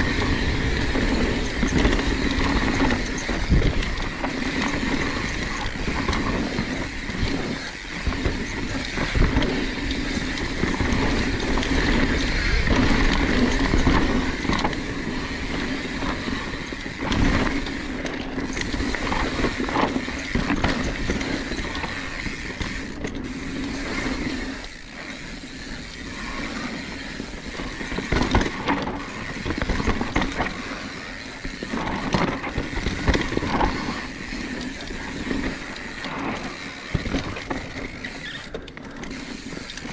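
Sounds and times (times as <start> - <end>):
bike knocking and rattling on bumps: 0.0 - 39.9
bike tyres and drivetrain whirring: 0.0 - 39.9.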